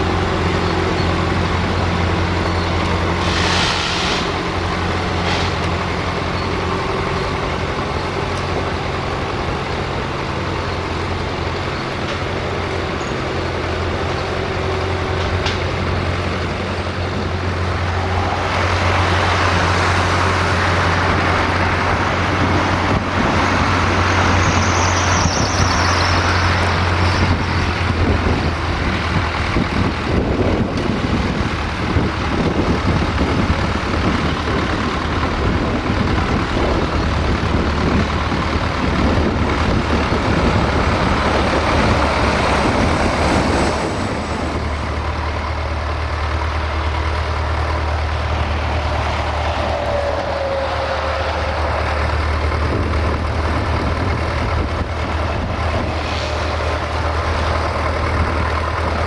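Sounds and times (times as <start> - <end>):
road traffic noise: 0.0 - 59.0
tractor diesel engine running: 0.0 - 59.0
short high squeal: 2.6 - 4.4, 24.1 - 27.3, 49.1 - 52.2.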